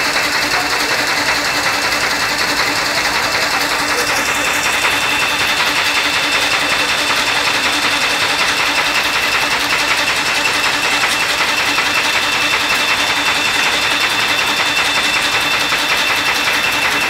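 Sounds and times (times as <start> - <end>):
constant high whine: 0.0 - 17.0
machinery clattering: 0.0 - 17.0.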